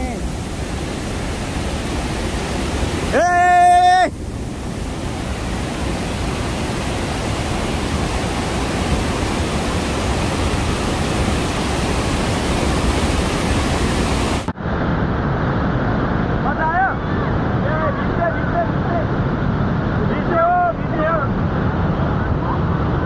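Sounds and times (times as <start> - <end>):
waterfall rushing: 0.0 - 14.5.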